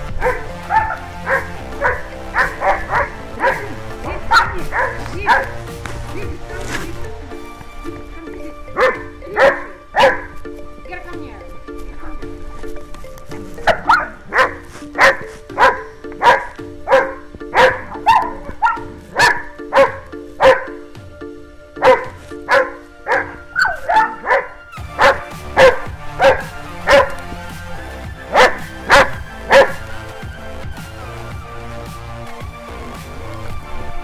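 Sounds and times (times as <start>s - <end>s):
background music: 0.0s - 34.0s
large dog barking: 0.1s - 5.6s, 8.8s - 10.4s, 13.6s - 20.8s, 21.8s - 27.3s, 28.2s - 29.9s.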